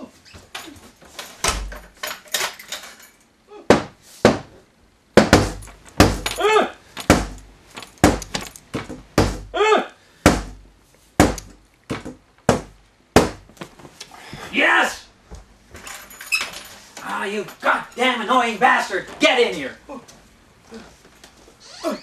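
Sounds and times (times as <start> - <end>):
heavy pounding on wooden door: 3.7 - 4.5, 5.2 - 6.4, 7.0 - 7.4, 8.0 - 9.6, 10.2 - 10.6, 11.2 - 13.5.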